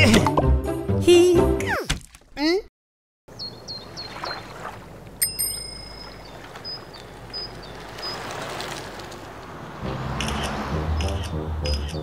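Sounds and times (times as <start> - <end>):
bird chirps: 3.3 - 4.6, 5.3 - 8.3
bicycle bell ringing: 5.2 - 6.1.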